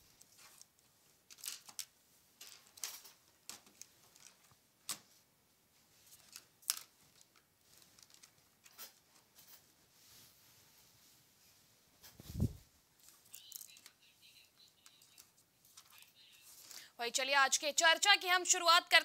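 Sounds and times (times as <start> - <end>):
rustles: 5.8 - 16.9.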